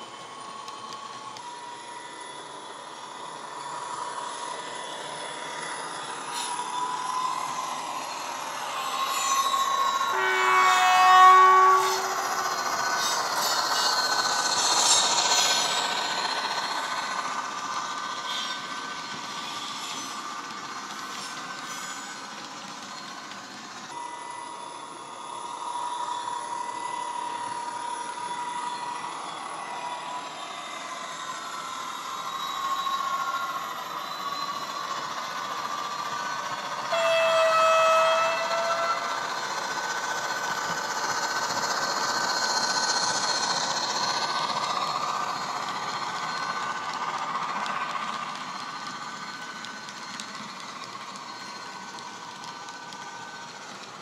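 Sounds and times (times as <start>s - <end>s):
train horn: 10.0s - 12.3s, 36.9s - 39.2s.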